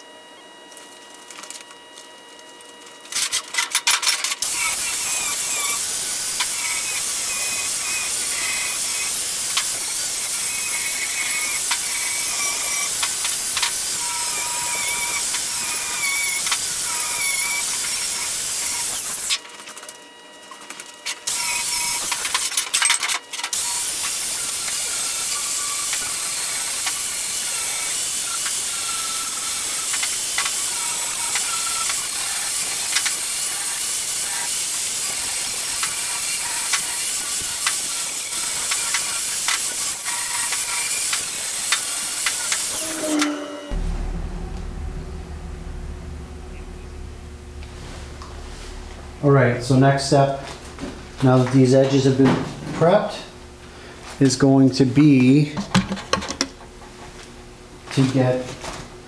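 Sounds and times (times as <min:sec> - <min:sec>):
angle grinder grinding steel: 0:04.4 - 0:19.3, 0:37.5 - 0:49.2.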